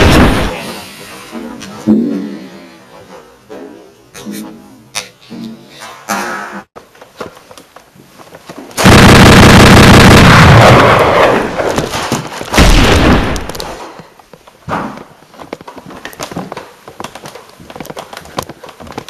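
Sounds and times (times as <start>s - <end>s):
loud blast: 0.0s - 0.7s, 8.8s - 11.7s.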